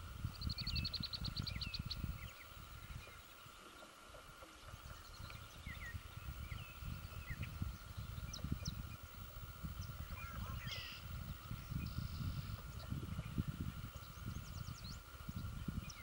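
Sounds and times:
low uneven rumble: 0.0s - 16.0s
birds chirping and whistling: 0.3s - 3.8s, 4.8s - 16.0s.

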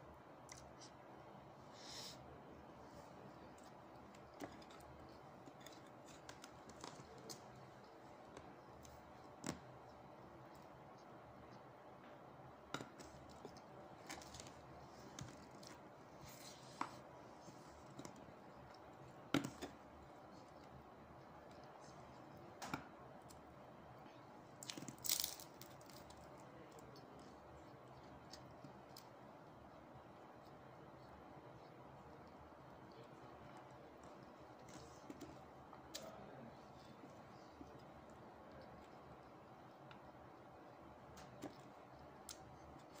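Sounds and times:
pastry tearing and crunching: 24.6s - 27.0s.

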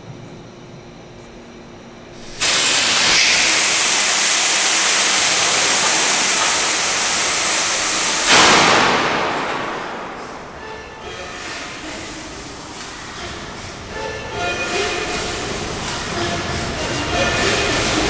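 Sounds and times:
loud air blast: 2.2s - 12.3s
compressed air rushing: 2.2s - 13.8s.

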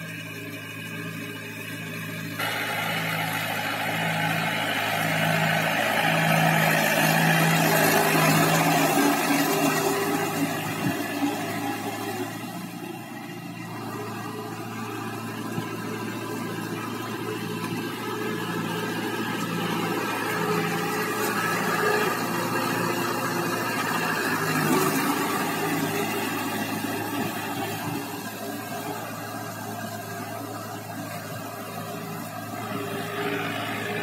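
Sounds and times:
tractor diesel engine running: 0.0s - 34.0s.

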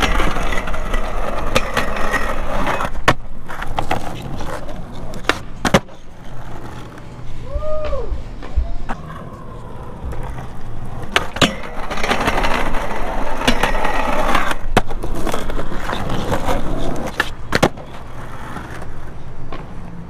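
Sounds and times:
skateboard clacking: 0.0s - 7.1s, 8.9s - 20.0s
skateboard wheels rolling on asphalt: 0.0s - 20.0s.

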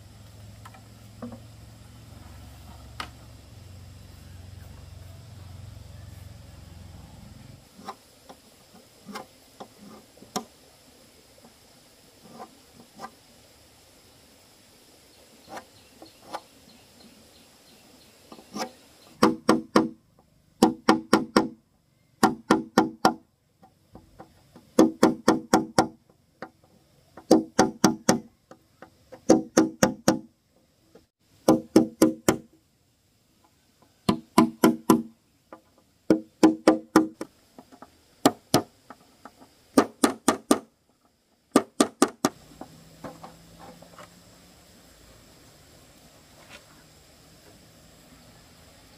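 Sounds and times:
hammer knocking on metal roofing sheet: 19.2s - 20.0s, 20.6s - 21.6s, 22.2s - 23.2s, 24.8s - 26.0s, 27.2s - 28.3s, 29.2s - 30.3s, 34.1s - 35.1s, 36.1s - 37.2s, 39.8s - 40.7s.

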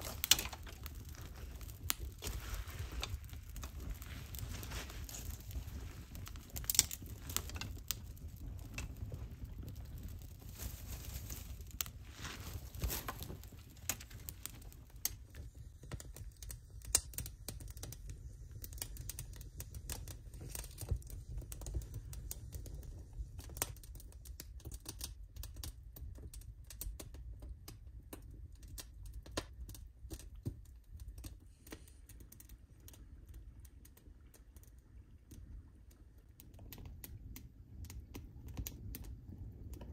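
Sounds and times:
campfire crackling and popping: 0.0s - 39.9s.

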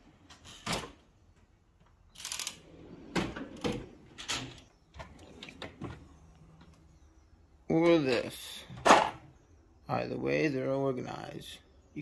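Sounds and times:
metal drawers sliding and shutting: 2.6s - 6.0s.

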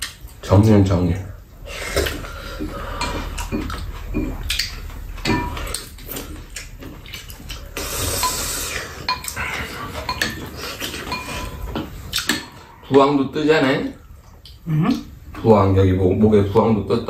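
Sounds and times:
spoons clinking against bowls: 2.9s - 6.4s, 8.0s - 12.5s
hiss of noise: 7.7s - 9.0s.

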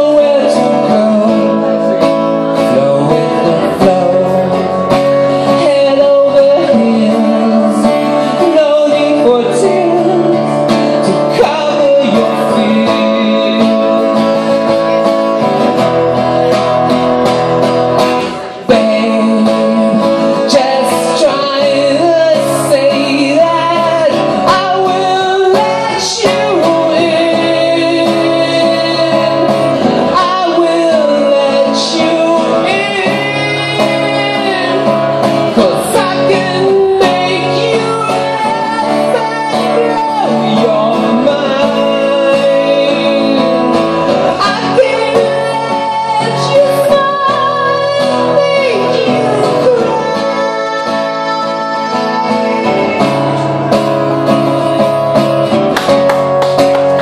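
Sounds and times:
man singing into a microphone: 0.0s - 56.0s
acoustic guitar: 0.0s - 57.0s.

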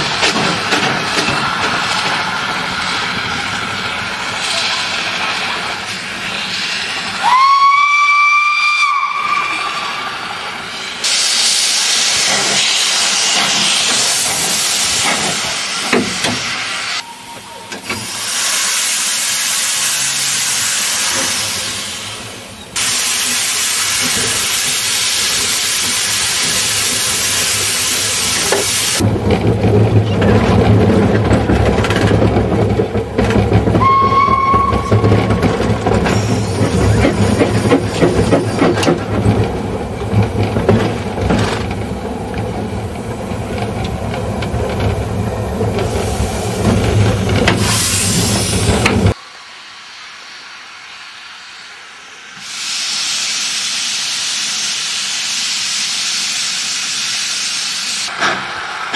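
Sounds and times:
loud steam hissing: 0.0s - 29.2s, 33.4s - 58.9s
diesel locomotive engine rumble: 0.0s - 58.9s
steam locomotive whistle: 7.2s - 10.3s, 33.8s - 35.5s.

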